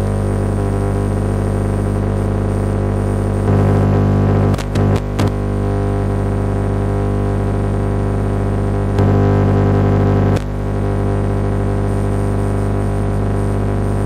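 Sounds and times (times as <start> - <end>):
radio electrical buzz and hiss: 0.0 - 14.0
clicks: 4.5 - 5.4.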